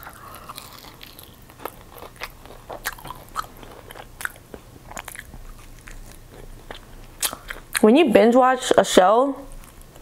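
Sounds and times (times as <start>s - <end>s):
chewing crispy food crunches: 0.0s - 7.9s.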